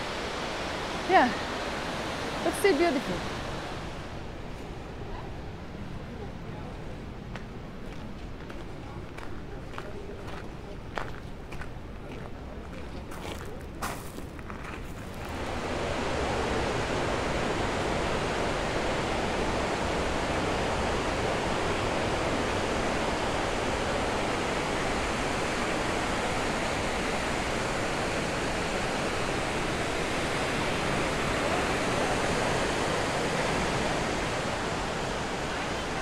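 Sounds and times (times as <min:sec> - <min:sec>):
waterfall roaring: 0:00.0 - 0:04.4, 0:15.0 - 0:36.0.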